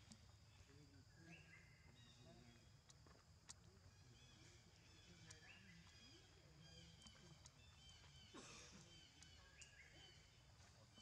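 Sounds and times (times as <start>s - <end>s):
faint clicks: 2.8s - 3.8s, 6.7s - 8.1s, 9.1s - 9.8s.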